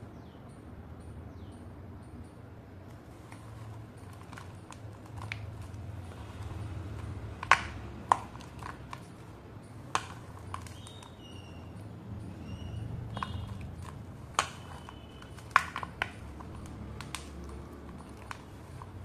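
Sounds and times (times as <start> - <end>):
fingers crunching slate chips: 3.3 - 11.7, 12.3 - 19.0.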